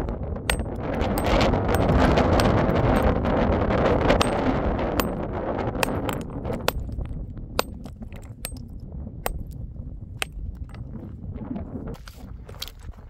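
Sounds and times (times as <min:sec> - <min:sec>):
hammer striking stone: 0:00.5 - 0:03.2, 0:04.2 - 0:05.2, 0:05.8 - 0:08.7, 0:09.3 - 0:09.6, 0:10.2 - 0:10.8.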